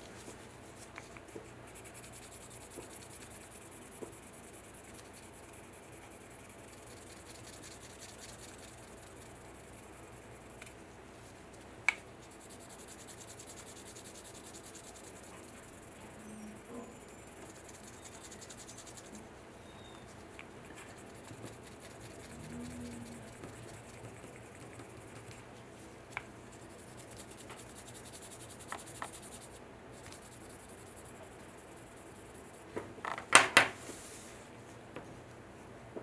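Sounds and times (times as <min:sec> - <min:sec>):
sanding stick scratching: 0:01.7 - 0:10.2, 0:12.2 - 0:16.0, 0:16.6 - 0:19.1, 0:20.0 - 0:25.4, 0:26.5 - 0:32.5.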